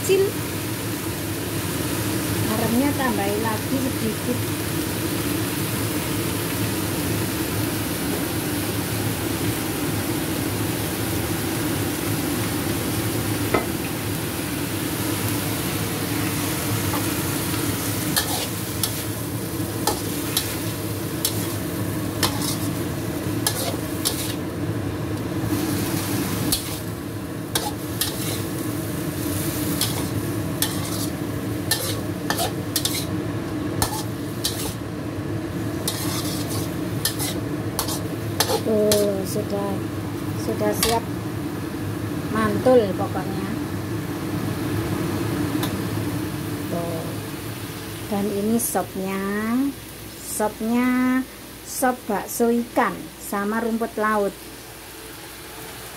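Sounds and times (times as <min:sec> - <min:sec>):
vegetables sizzling in a wok: 0:00.0 - 0:55.9
spatula scraping and knocking pan: 0:22.2 - 0:22.8, 0:29.8 - 0:33.1, 0:35.8 - 0:39.0.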